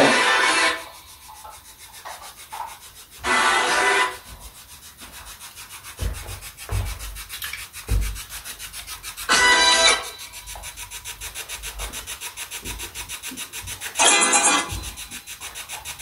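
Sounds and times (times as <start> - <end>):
hissing radio static: 0.0 - 0.9.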